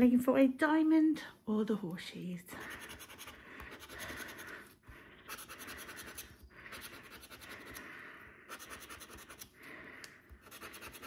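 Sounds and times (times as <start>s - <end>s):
scratching coating off scratchcard: 2.6s - 4.7s, 5.3s - 7.9s, 8.5s - 9.6s, 10.4s - 11.0s.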